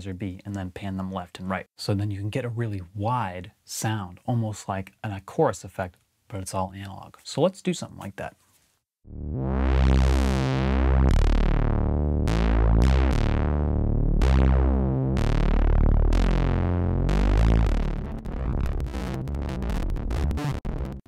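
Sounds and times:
analog synthesizer bass line: 0:09.0 - 0:21.0.

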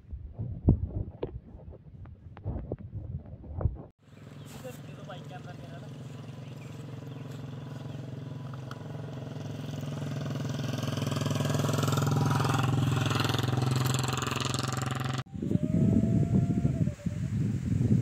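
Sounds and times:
vehicle engine running: 0:04.0 - 0:15.2.

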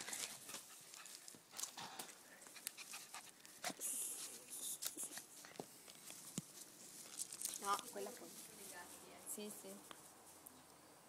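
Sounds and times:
dog panting: 0:00.2 - 0:03.8
rustling in grass: 0:02.8 - 0:10.5.

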